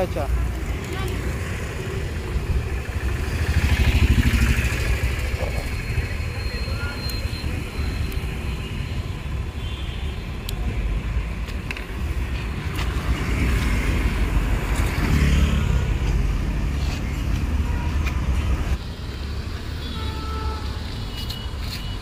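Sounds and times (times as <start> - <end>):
vehicle passing: 12.8 - 17.0.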